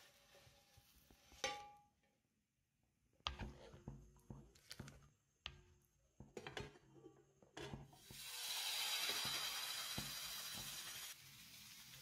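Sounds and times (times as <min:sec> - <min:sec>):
batter sizzling in hot pan: 0:08.0 - 0:12.0.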